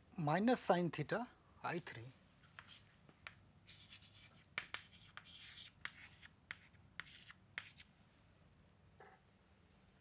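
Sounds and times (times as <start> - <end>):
chalk scratching on chalkboard: 2.6 - 7.9
chalk tapping on board: 2.6 - 7.9.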